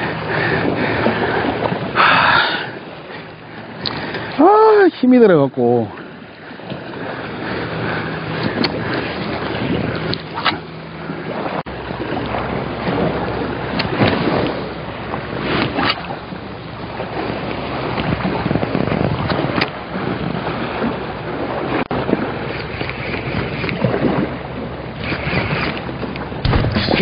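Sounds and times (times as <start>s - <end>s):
wind buffeting microphone: 0.0s - 27.0s
sea washing against rocks: 11.3s - 27.0s.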